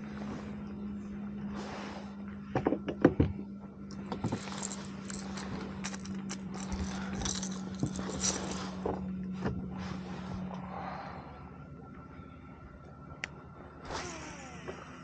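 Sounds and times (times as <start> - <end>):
steady low hum: 0.0 - 15.0
fishing gear clicking: 3.9 - 8.7.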